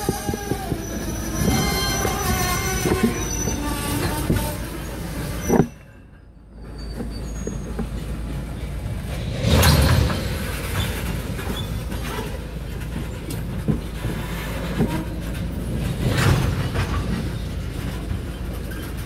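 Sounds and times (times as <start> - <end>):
clanks and clicks: 0.0 - 4.6, 9.6 - 19.0
train rumbling: 0.0 - 19.0
train wheels squealing: 0.0 - 19.0.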